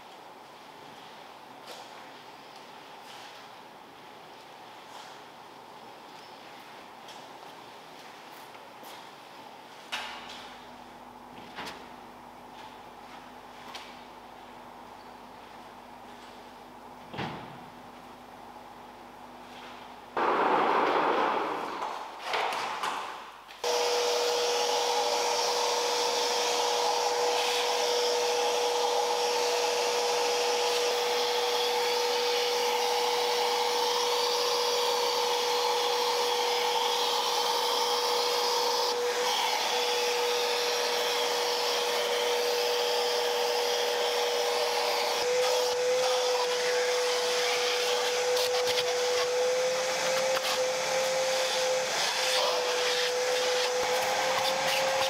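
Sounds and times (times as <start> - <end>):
vacuum cleaner motor whine: 23.6 - 55.0.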